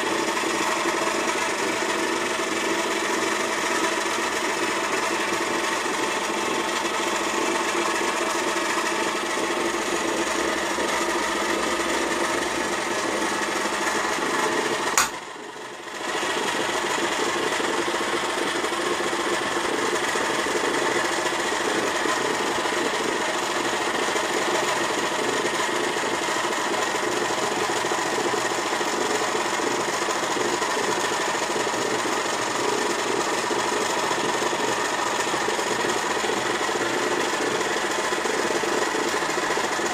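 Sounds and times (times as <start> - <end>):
stand mixer motor whirring: 0.0 - 39.9
mixer switch click: 15.0 - 15.2.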